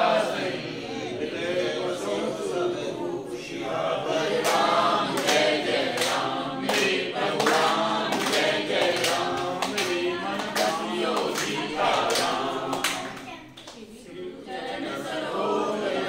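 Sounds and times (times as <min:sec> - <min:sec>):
group singing a devotional chant: 0:00.0 - 0:16.0
hands clapping: 0:04.4 - 0:13.9.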